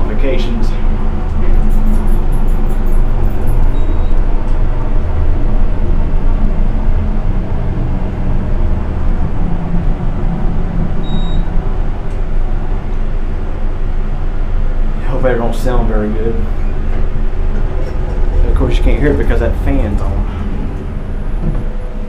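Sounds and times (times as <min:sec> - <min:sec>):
ventilation fan running: 0:00.0 - 0:22.0
short high beeps: 0:01.4 - 0:04.2, 0:11.0 - 0:11.5.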